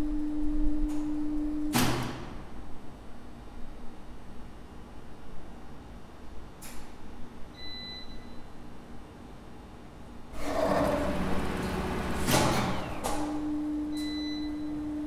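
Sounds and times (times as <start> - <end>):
steady machine hum: 0.0 - 4.0, 10.1 - 15.0
elevator winch machinery running: 10.4 - 15.0.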